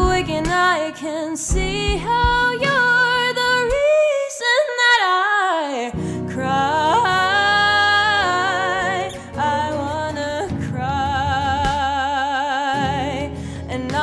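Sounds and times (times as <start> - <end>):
strummed acoustic guitar: 0.0 - 0.8, 5.9 - 14.0
woman singing with vibrato: 0.0 - 14.0.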